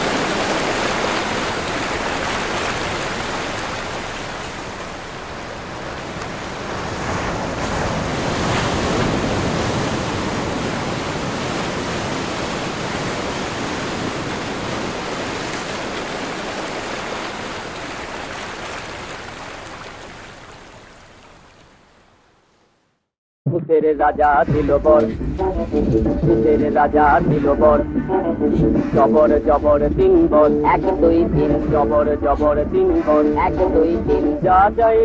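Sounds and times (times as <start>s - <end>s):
surging water and spray: 0.0s - 22.3s
wind: 0.0s - 22.8s.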